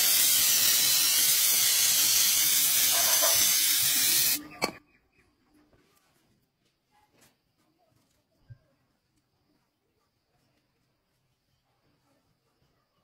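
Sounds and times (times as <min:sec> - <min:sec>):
aerosol spray can hissing: 0:00.0 - 0:04.4.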